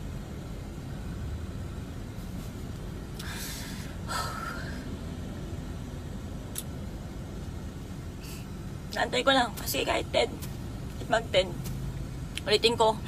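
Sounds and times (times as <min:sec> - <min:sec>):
low background rumble: 0:00.0 - 0:13.0
person breathing noisily: 0:03.2 - 0:05.0.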